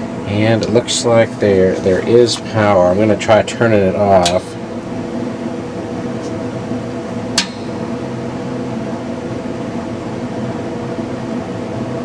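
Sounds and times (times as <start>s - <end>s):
fan humming: 0.0s - 12.0s
fan switch click: 4.2s - 4.5s, 7.3s - 7.8s.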